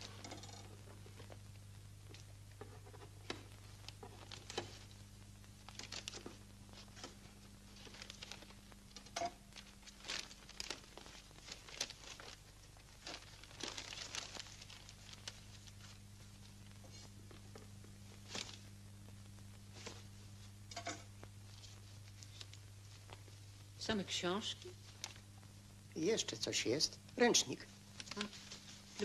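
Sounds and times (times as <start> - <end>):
paper and cardboard crinkling: 5.6 - 9.0, 9.6 - 18.7.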